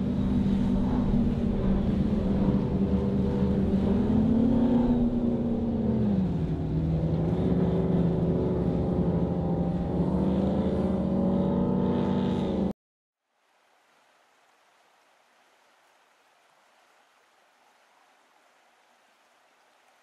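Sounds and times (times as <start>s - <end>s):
powerboat engines running hard: 0.0s - 12.7s.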